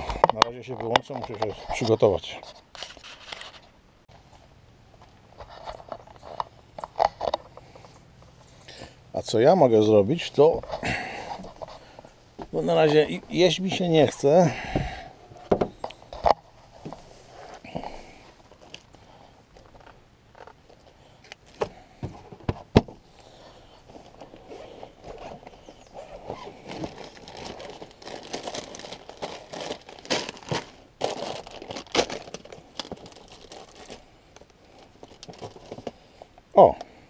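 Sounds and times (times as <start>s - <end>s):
knocks and bumps: 14.6s - 17.0s
plastic bag crinkling: 23.9s - 36.0s.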